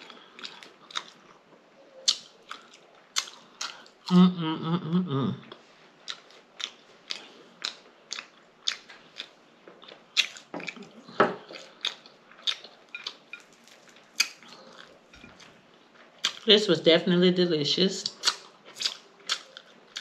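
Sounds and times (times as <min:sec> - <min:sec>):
chewing with lip smacking: 0:00.0 - 0:01.4, 0:02.0 - 0:04.0, 0:05.5 - 0:16.5, 0:18.1 - 0:20.0.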